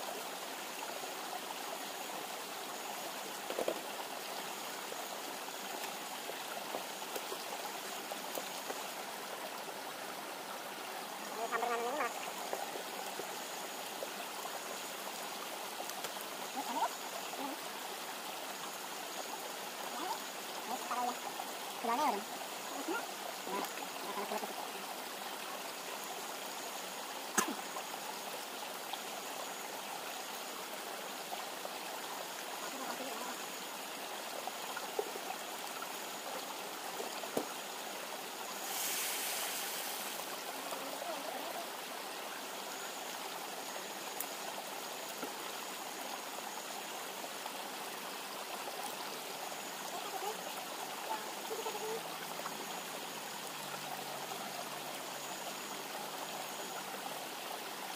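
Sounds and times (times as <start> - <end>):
river flowing: 0.0 - 57.9
brief hiss: 38.6 - 40.3.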